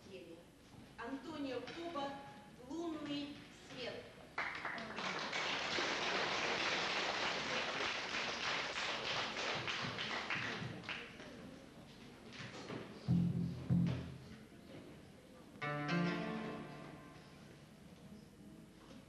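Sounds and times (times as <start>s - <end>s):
audience applauding: 4.4s - 11.1s.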